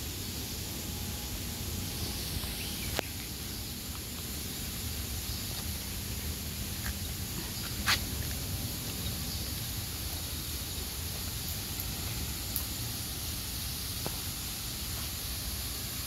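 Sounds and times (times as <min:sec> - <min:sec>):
outdoor background hiss: 0:00.0 - 0:16.0.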